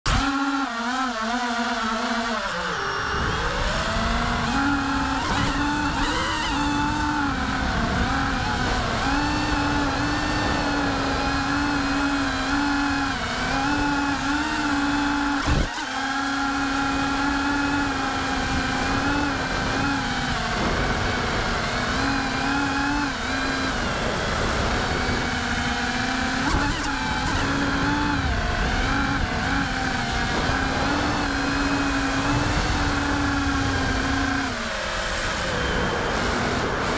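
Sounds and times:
drone motors whining: 0.1 - 36.9
wind rush on microphone: 3.0 - 15.7, 16.8 - 36.9.

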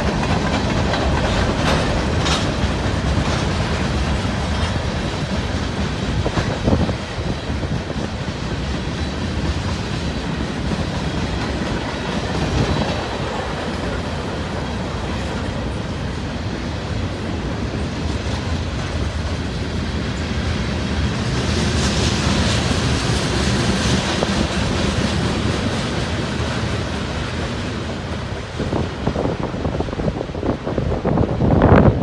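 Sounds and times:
train wheels rumbling on rail: 0.0 - 32.0
wind buffeting microphone: 0.0 - 32.0.

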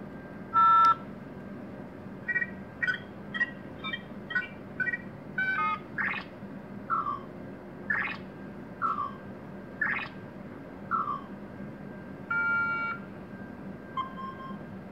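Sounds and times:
short multi-tone electronic beeps: 2.3 - 6.3, 7.9 - 8.2, 9.8 - 10.2, 12.3 - 13.0.

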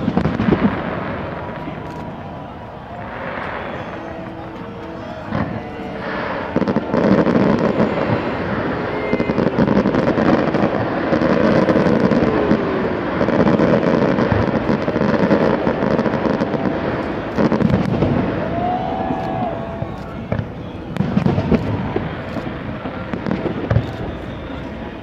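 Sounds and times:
fireworks bangs and crackles: 0.0 - 25.0.

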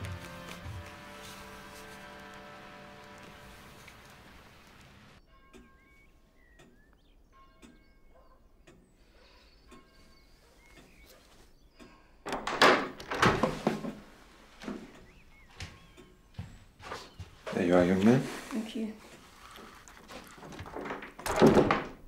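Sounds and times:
faint ticking: 1.9 - 12.2, 14.5 - 17.4
clatter of knocks and rattling: 12.3 - 14.8, 19.6 - 22.0.

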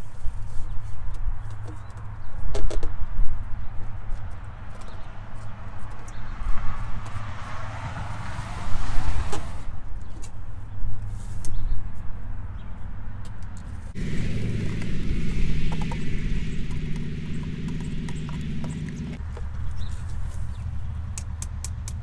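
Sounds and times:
steady low rumble: 13.9 - 19.2.

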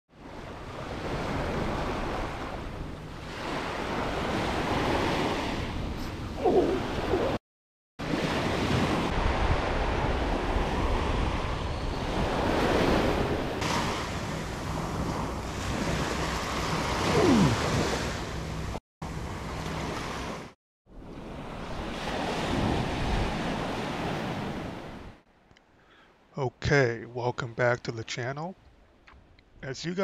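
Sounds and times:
wind: 0.1 - 7.4, 8.0 - 30.0
surf breaking on beach: 12.2 - 18.2.

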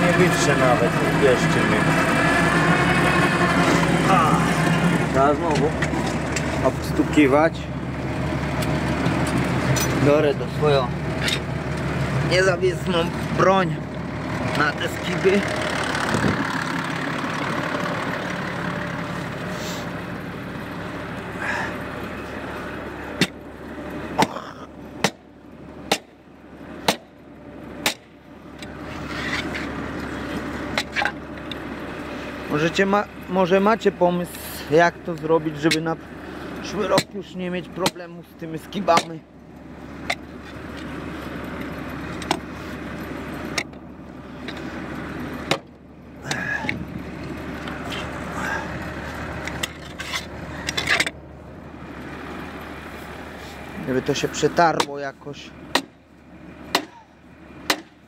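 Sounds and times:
tractor engine idling: 0.0 - 58.0
sharp knocks on metal: 25.0 - 25.2, 25.9 - 26.2, 26.8 - 27.1, 27.8 - 28.1, 56.7 - 57.0, 57.6 - 58.0
soil scraping off plough: 28.8 - 29.8.

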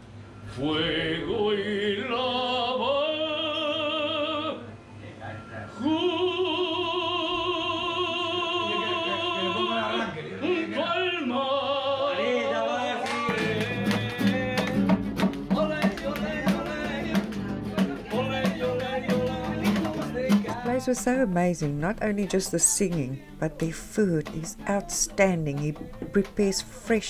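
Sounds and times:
man singing with vibrato: 0.5 - 4.7, 5.8 - 26.9
strummed acoustic guitar: 13.3 - 27.0.

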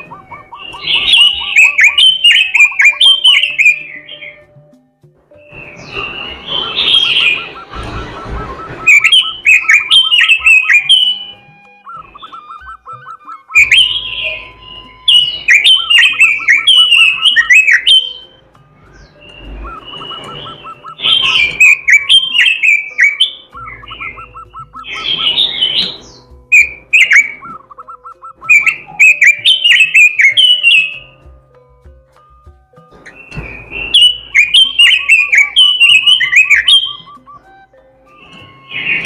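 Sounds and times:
bird singing sliding whistled notes: 0.0 - 4.5, 5.4 - 31.2, 33.1 - 39.0.

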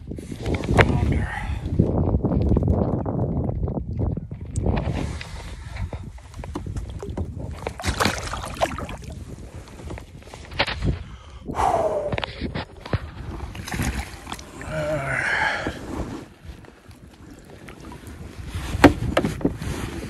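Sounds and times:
fishing gear knocking and rustling: 5.7 - 11.1, 16.2 - 19.6
water sloshing: 6.2 - 10.4, 12.5 - 19.7.

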